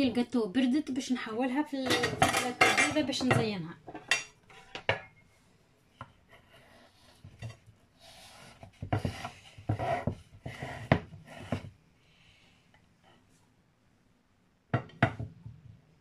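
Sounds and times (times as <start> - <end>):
knife scraping wooden board: 6.3 - 11.7.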